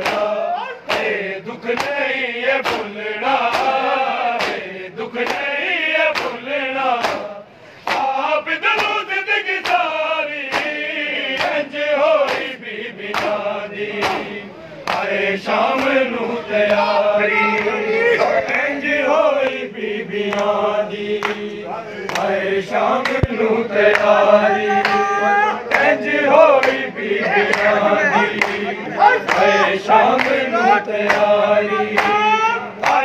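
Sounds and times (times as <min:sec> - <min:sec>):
hands slapping chests: 0:00.0 - 0:00.3, 0:00.9 - 0:01.1, 0:02.6 - 0:02.9, 0:03.5 - 0:03.8, 0:04.4 - 0:04.6, 0:06.1 - 0:06.4, 0:07.0 - 0:08.1, 0:08.8 - 0:09.0, 0:09.6 - 0:09.8, 0:10.5 - 0:11.6, 0:12.2 - 0:13.4, 0:14.0 - 0:14.3, 0:14.9 - 0:15.1, 0:23.0 - 0:24.2, 0:27.5 - 0:28.6, 0:29.2 - 0:29.6
crowd of men chanting: 0:00.0 - 0:33.0.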